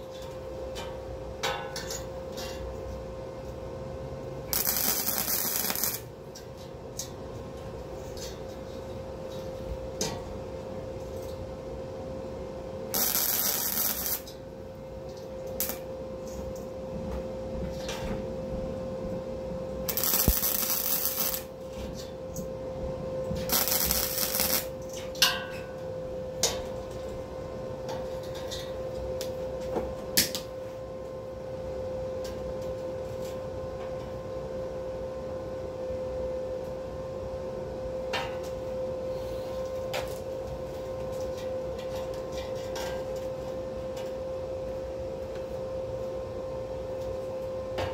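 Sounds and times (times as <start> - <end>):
steady hum: 0.0 - 47.9
welding arc noise bursts: 4.5 - 6.1, 12.9 - 14.3, 19.9 - 21.5, 23.5 - 24.8.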